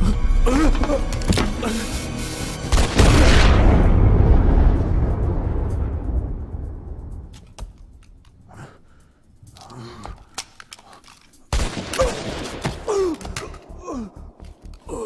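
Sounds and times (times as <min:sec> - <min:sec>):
man groaning and gasping: 0:00.0 - 0:02.0, 0:08.5 - 0:10.4, 0:12.0 - 0:15.0.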